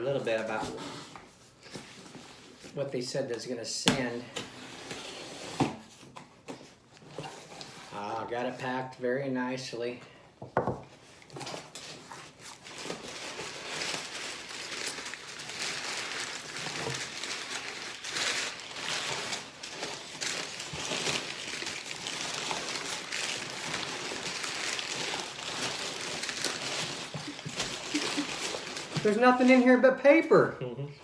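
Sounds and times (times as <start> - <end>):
packing paper rustling and crinkling: 11.0 - 29.8.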